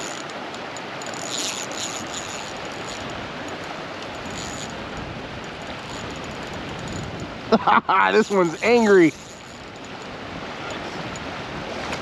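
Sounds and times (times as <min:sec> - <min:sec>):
stream water flowing: 0:00.0 - 0:12.0.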